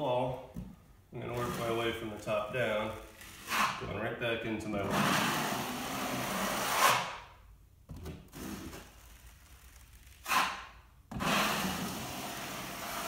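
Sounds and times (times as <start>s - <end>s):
taping knife scraping wall: 1.2s - 4.0s, 4.7s - 7.3s, 7.9s - 13.0s.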